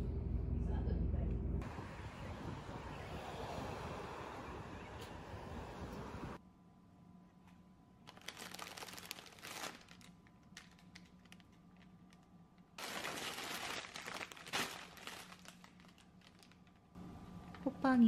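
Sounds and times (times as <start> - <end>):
plastic bags crinkling and rustling: 8.0 - 17.0.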